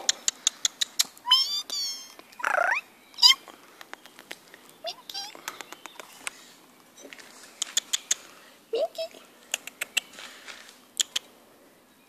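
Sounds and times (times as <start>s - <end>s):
sharp clicks: 3.8s - 4.6s, 5.4s - 6.4s, 7.6s - 8.2s, 9.5s - 10.1s, 11.0s - 11.3s.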